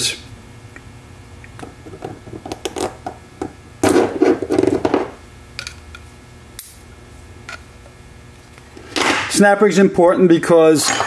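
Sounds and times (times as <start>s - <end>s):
metal parts clattering: 10.7s - 11.0s.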